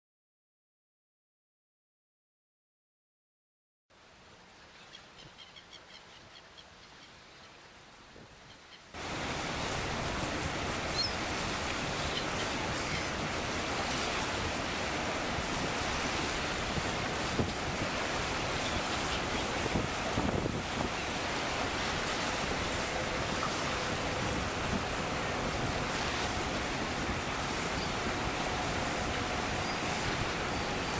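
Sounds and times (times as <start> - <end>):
water rushing in bow wave: 9.0 - 30.9
wind noise on microphone: 9.0 - 30.9.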